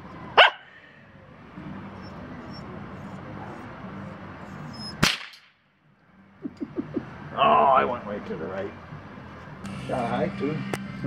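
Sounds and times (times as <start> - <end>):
steady low hum: 5.8 - 11.0.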